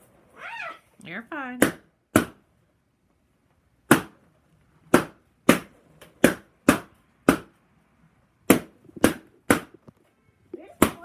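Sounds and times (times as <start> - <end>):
balloons popping: 3.8 - 4.2, 4.8 - 7.6.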